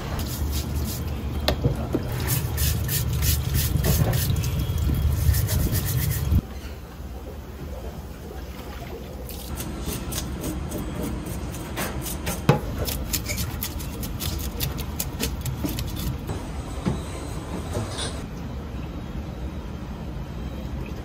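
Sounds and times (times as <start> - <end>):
wet scrubbing strokes: 0.2 - 1.2, 2.1 - 6.4.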